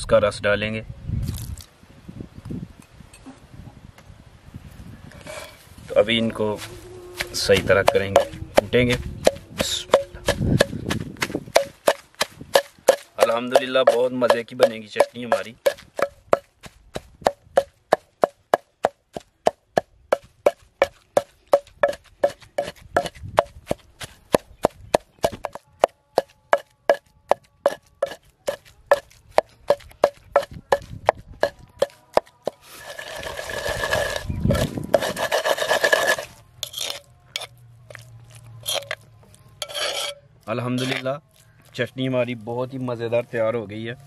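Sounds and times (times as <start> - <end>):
spoon scraping bowl: 5.1 - 5.6, 6.6 - 10.7, 11.5 - 16.2, 21.8 - 23.1, 29.7 - 41.1
pestle grinding against clay: 6.3 - 41.8
pestle pounding in clay mortar: 7.2 - 38.0, 38.6 - 39.0, 40.8 - 41.0.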